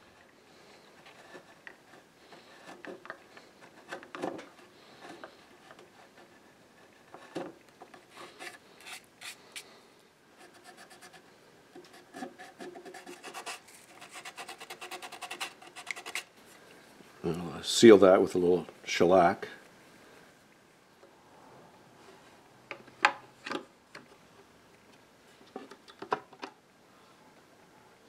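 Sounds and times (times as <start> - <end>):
chisel scraping wood: 1.0 - 9.6, 11.8 - 16.3
sandpaper sanding wood: 12.2 - 16.3.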